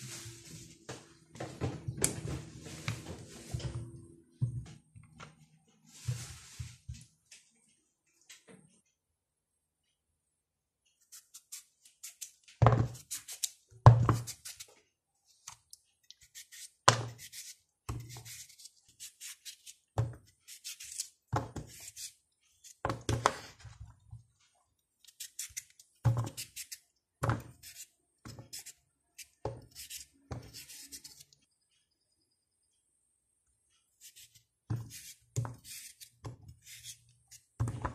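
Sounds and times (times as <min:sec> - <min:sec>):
knife cutting raw potato: 0:11.0 - 0:14.7, 0:15.4 - 0:23.6, 0:25.0 - 0:31.4, 0:34.0 - 0:37.9.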